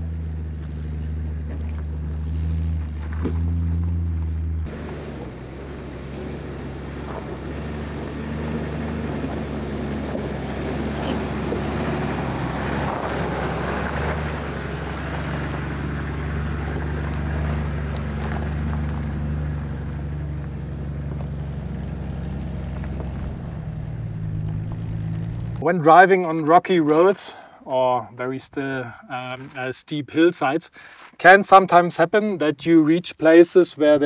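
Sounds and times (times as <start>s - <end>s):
low engine drone: 0.0s - 28.2s
tyres crunching over stones: 0.4s - 25.6s.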